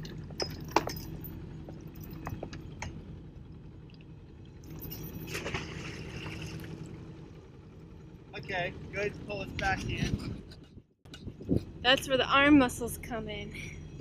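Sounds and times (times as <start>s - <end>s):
boat engine humming: 0.0s - 14.0s
anchor splashing into water: 5.2s - 7.0s.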